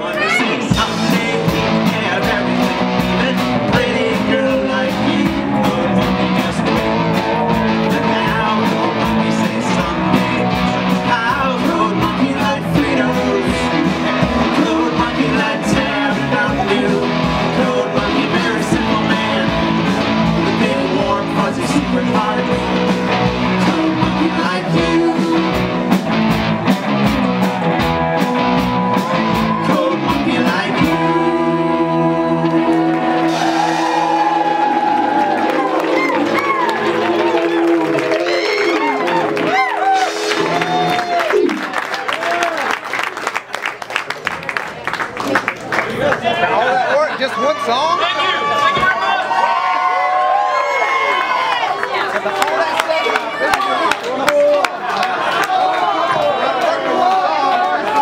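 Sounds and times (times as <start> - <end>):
person singing through pa: 0.0 - 26.0, 29.0 - 34.8
live rock band playing: 0.0 - 42.4.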